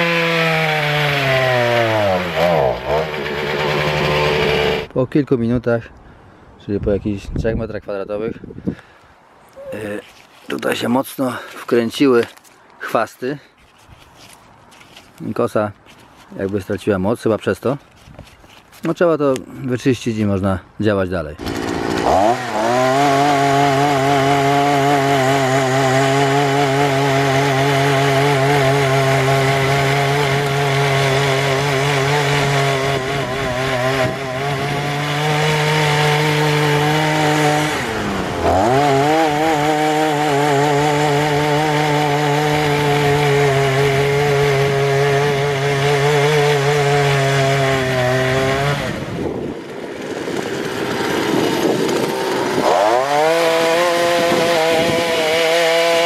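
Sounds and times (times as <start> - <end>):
brush cutter engine at high revs: 0.0 - 4.9, 21.4 - 56.0
tiller tines churning soil: 0.0 - 4.9, 21.4 - 56.0.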